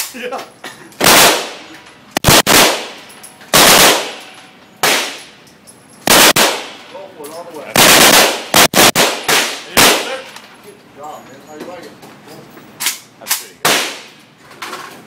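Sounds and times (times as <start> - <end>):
gunshots ringing indoors: 1.0 - 5.3, 6.0 - 6.9, 7.8 - 10.3.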